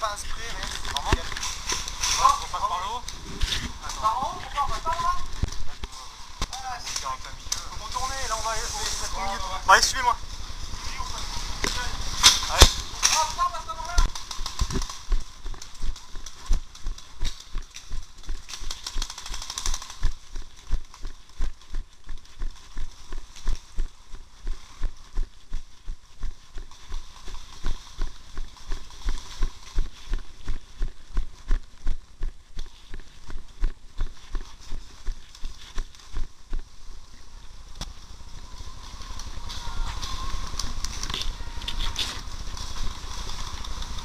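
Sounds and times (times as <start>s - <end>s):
running footsteps on grass and dirt: 0.0s - 44.0s
clothing rubbing against microphone: 0.4s - 6.1s.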